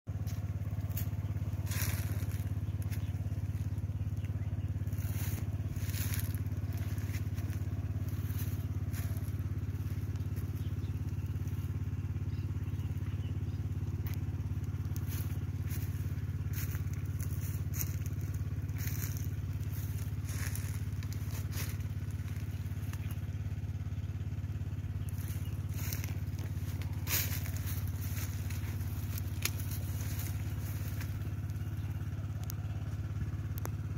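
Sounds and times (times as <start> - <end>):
low mechanical drone: 0.1 - 33.9
crackling and rustling: 14.0 - 23.3, 25.1 - 32.6.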